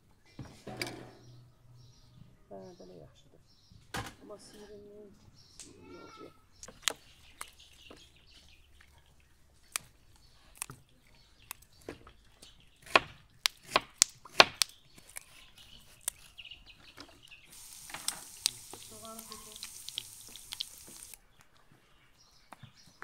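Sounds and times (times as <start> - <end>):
bean pods snapping: 6.6 - 16.5, 17.6 - 21.5.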